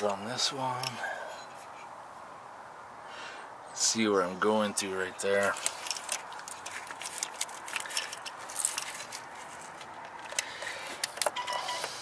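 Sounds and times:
plastic wiring clicks and rustling: 5.4 - 12.0.

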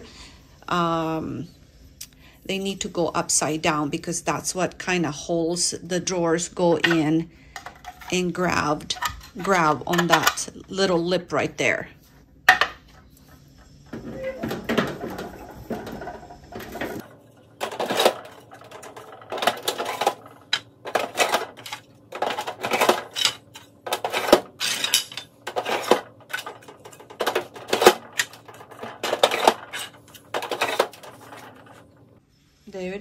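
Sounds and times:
plastic drawers clattering into rails: 14.0 - 31.9.

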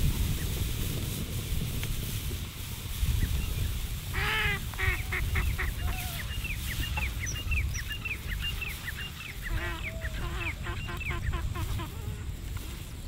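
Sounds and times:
high downward-slurred bird calls: 3.2 - 12.0
harsh honking bird calls: 4.1 - 6.3, 9.3 - 12.1.

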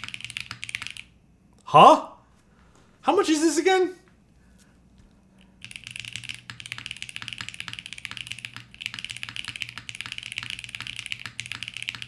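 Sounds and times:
fast mechanical keyboard typing: 0.0 - 1.1, 5.4 - 12.0.

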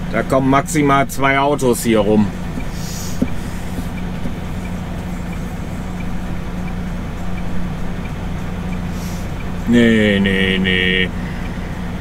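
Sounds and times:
diesel truck engine idling: 0.0 - 12.0
faint repeating tick: 2.5 - 9.7.

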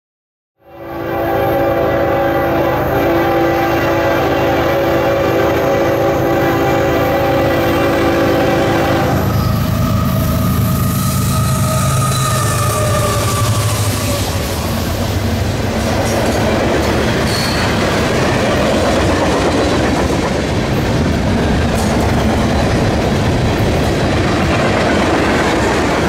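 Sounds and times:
train horn chord: 0.6 - 14.9.

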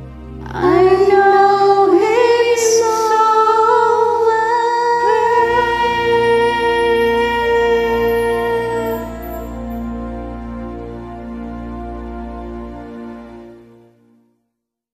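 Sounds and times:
two women singing a ballad: 0.4 - 9.6.

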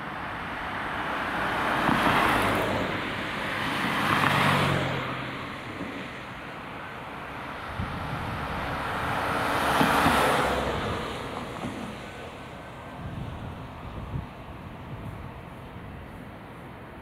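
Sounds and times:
steady traffic hum: 0.0 - 17.0
vehicle swishing past: 1.5 - 5.6.

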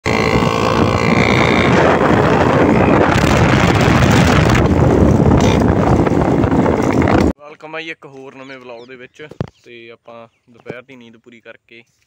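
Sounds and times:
loud scooter engine: 0.0 - 7.3
wind noise on microphone: 0.0 - 7.4.

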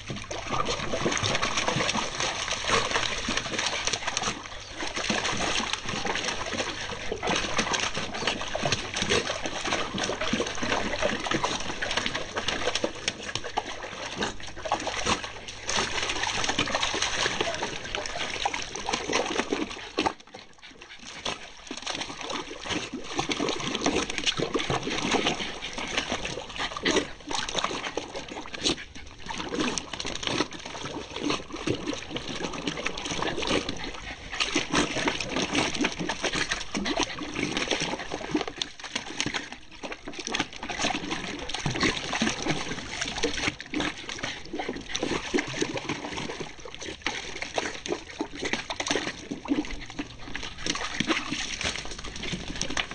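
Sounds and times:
water splashing and sloshing: 0.0 - 52.9.

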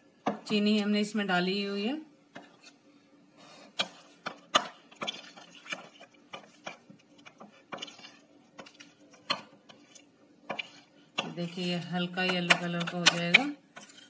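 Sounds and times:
metal spoon stirring in glass bowl: 3.8 - 14.0.

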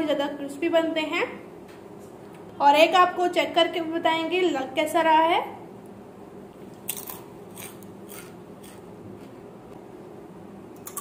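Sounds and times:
crunchy snack being chewed: 6.7 - 9.3.

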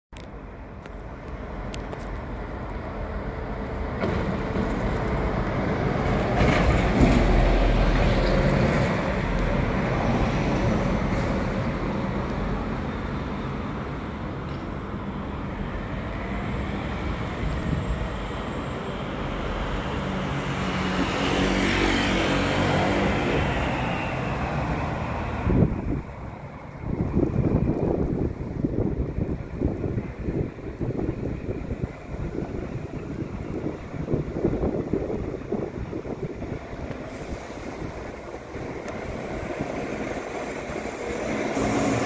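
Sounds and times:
buses and cars driving past: 0.2 - 42.0.

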